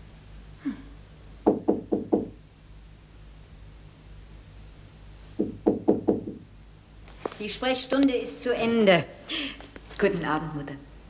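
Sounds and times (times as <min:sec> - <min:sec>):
knuckles knocking on a door: 0:01.5 - 0:02.4, 0:05.4 - 0:06.4.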